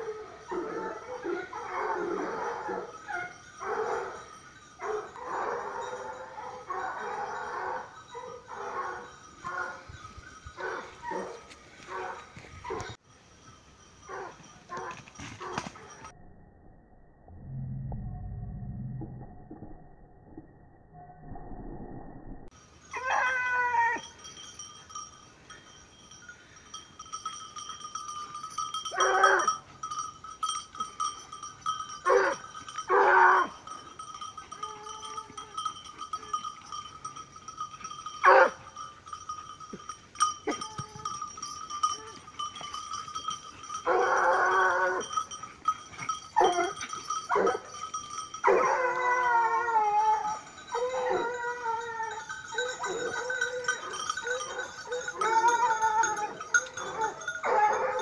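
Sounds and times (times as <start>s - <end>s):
thin steady high tone: 22.4s - 58.0s
wavering animal cries: 22.9s - 24.1s, 48.4s - 58.0s.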